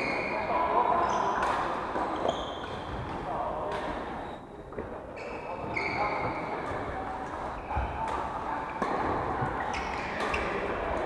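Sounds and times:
voices in background: 0.0s - 11.0s
racket hitting shuttlecock: 1.3s - 4.0s
shoes squeaking on wooden floor: 2.1s - 3.1s, 5.2s - 6.8s, 9.4s - 10.7s.

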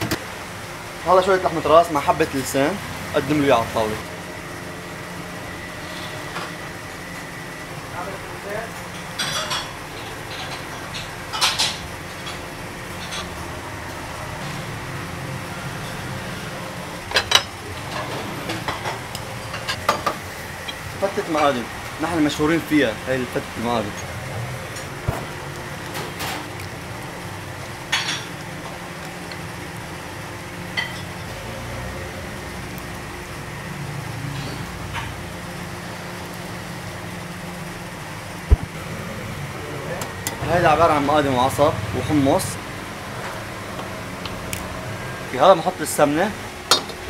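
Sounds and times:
knife and metal kitchenware clinking: 9.0s - 12.4s.

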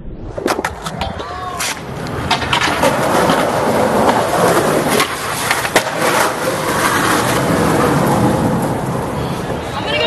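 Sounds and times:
skateboard wheels rolling on concrete: 0.4s - 10.0s
skateboard clacks: 0.5s - 10.0s.

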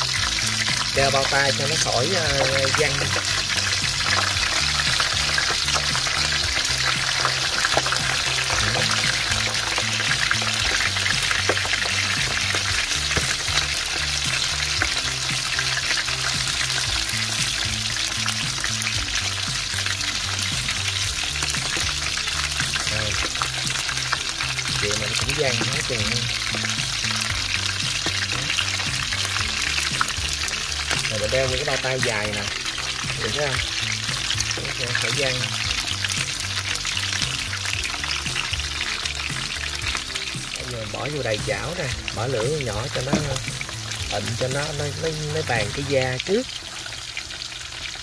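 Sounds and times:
fish frying in hot oil: 0.0s - 48.0s.

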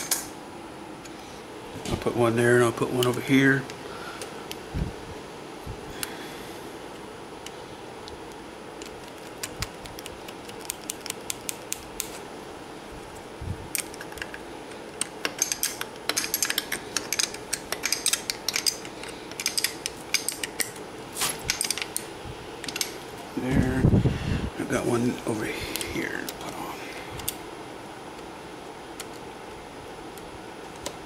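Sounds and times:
wrench clicking on nuts: 15.2s - 20.8s.

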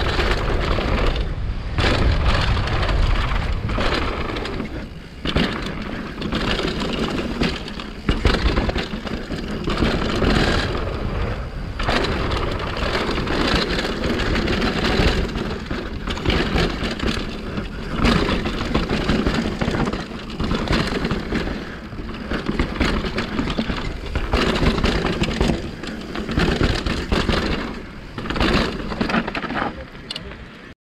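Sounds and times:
bike knocking and rattling: 0.0s - 30.7s
tyres rushing on dirt: 0.0s - 30.8s.

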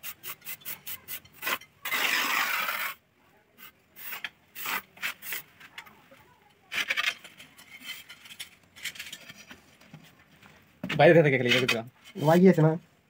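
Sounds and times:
tiles scraping on mortar: 0.0s - 3.0s, 6.7s - 9.6s.

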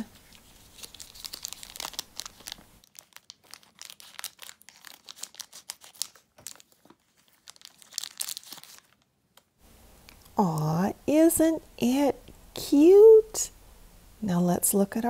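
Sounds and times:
plastic wrapper crackling: 0.2s - 9.5s.

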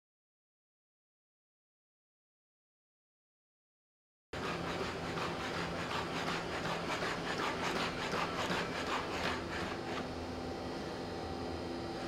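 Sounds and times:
steady low hum: 4.4s - 12.0s.

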